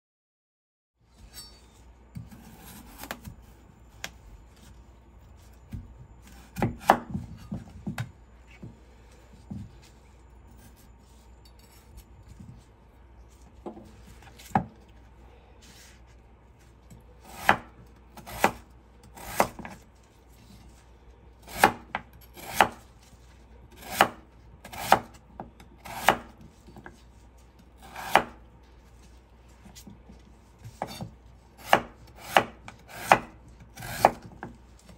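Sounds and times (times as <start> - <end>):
knife slicing potato on board: 17.2 - 19.8, 21.5 - 22.8, 23.7 - 25.2, 25.8 - 27.0, 27.6 - 28.4, 30.6 - 34.9.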